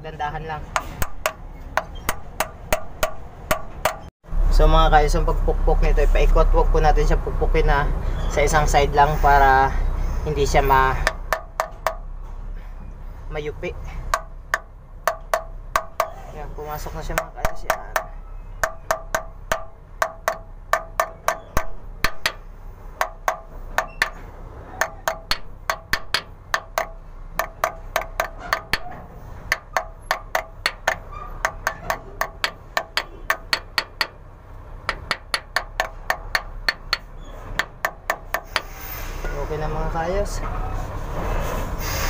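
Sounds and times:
small hammer tapping on metal: 0.8s - 4.1s, 11.0s - 12.0s, 14.1s - 16.2s, 17.1s - 22.4s, 23.0s - 24.2s, 24.8s - 34.2s, 34.9s - 38.7s.

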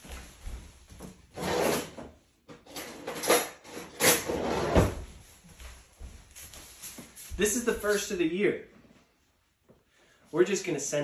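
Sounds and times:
kitchen drawer sliding: 2.8s - 5.0s.

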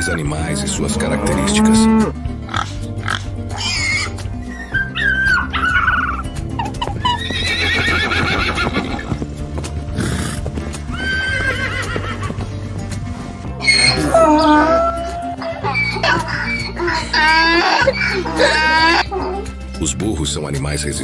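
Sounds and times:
background music with low drone: 0.0s - 21.0s
horse whinnying: 0.3s - 2.2s, 3.2s - 9.2s, 9.9s - 12.6s, 13.5s - 19.6s.

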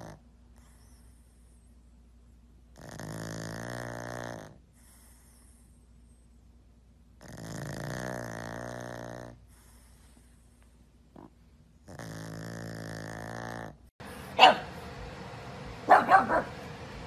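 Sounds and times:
dog snoring: 0.0s - 1.6s, 2.7s - 5.8s, 7.2s - 10.4s, 11.1s - 13.9s.

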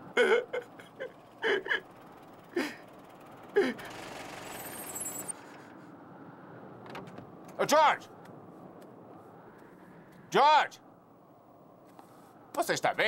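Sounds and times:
man gasping and sobbing: 0.1s - 3.9s
car tyre noise: 1.0s - 7.6s
high brake squeal: 3.8s - 5.5s.

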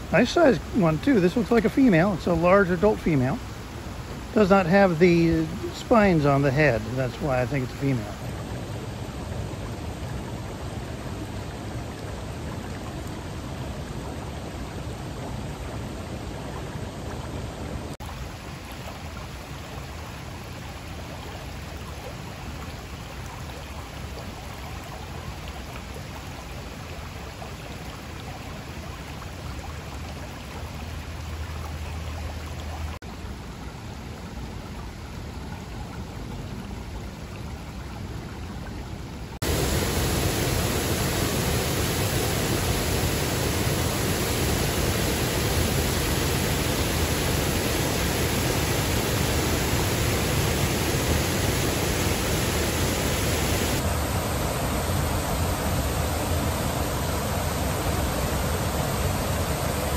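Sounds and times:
water pouring over dam: 0.0s - 8.4s, 39.4s - 59.9s
creek water running over rocks: 0.0s - 59.9s.

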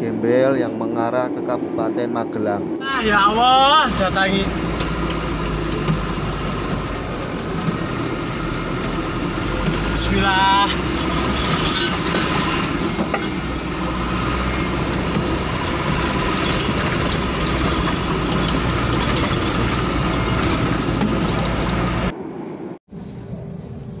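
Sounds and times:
train wheels on track: 3.0s - 22.2s.

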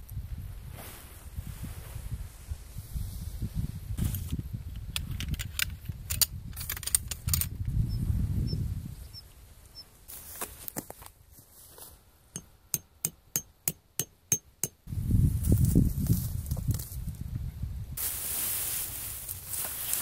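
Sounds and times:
hammer striking metal tent peg: 12.4s - 14.9s.

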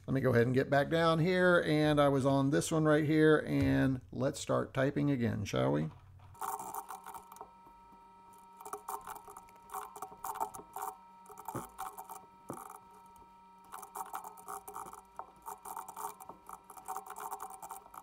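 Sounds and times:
computer keyboard typing: 13.7s - 18.0s.

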